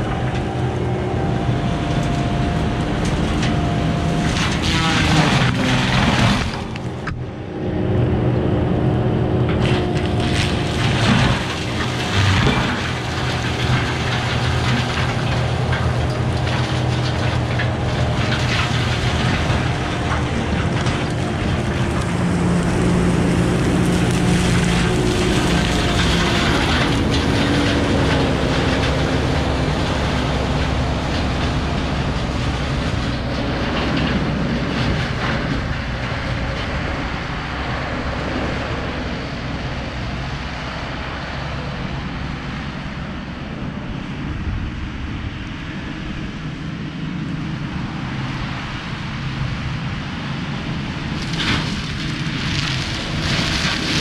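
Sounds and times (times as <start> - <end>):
diesel engine running hard: 0.0 - 54.0
mulcher grinding brush: 1.9 - 7.2, 9.5 - 38.6, 51.2 - 54.0.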